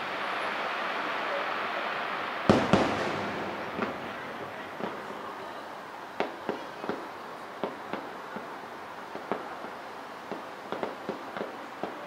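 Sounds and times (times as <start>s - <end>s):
fireworks bangs: 0.0s - 12.0s
steady hiss: 0.0s - 12.0s.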